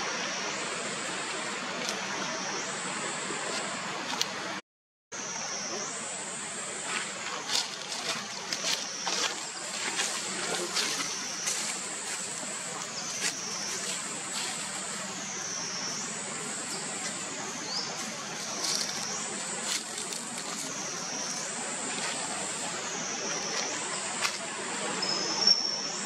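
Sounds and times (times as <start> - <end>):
steady outdoor hiss: 0.0 - 26.0
high-pitched insect drone: 5.2 - 26.0.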